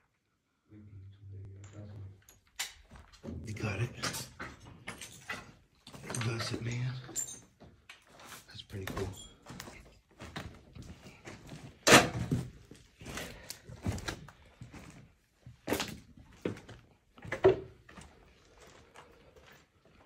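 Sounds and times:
footsteps on debris-strewn floor: 1.8s - 20.0s.

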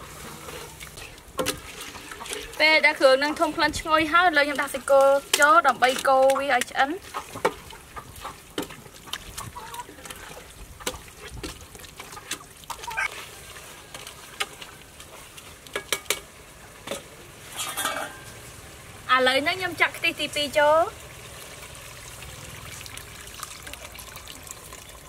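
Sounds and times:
ladle stirring thick paste: 0.1s - 16.1s.

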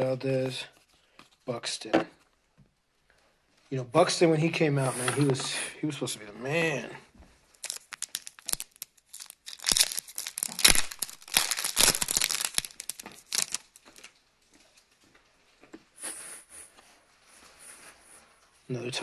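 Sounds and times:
wrapper tearing and crinkling: 7.6s - 14.2s.

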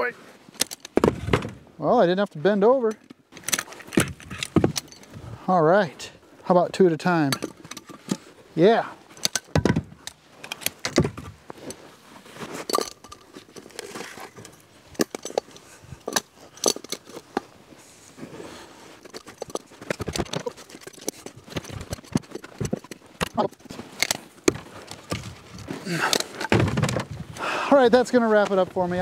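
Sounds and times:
firewood knocking and thudding: 0.9s - 1.7s, 3.9s - 4.8s, 9.4s - 10.1s, 10.8s - 11.4s, 24.4s - 27.3s.

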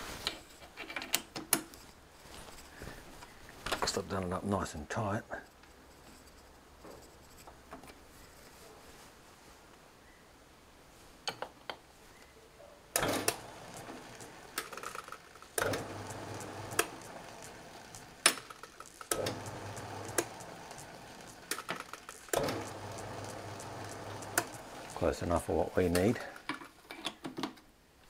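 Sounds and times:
lathe motor hum: 13.0s - 14.6s, 15.6s - 18.3s, 19.1s - 21.6s, 22.3s - 26.0s.

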